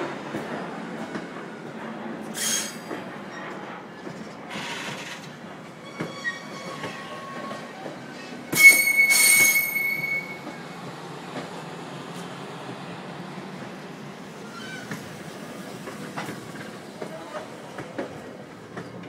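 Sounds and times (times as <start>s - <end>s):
train cars rumbling past: 0.0s - 19.0s
steel wheels squealing: 2.3s - 3.6s, 4.5s - 10.7s, 14.4s - 15.0s
loud high screech: 8.5s - 10.5s.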